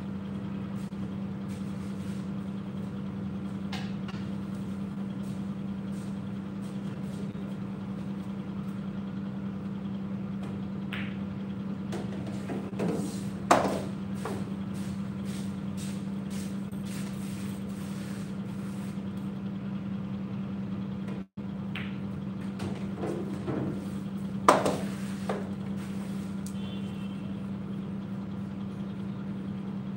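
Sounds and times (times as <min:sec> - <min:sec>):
steady low hum: 0:00.0 - 0:29.9
cue striking billiard balls: 0:10.8 - 0:11.3, 0:11.9 - 0:14.5, 0:21.6 - 0:25.6.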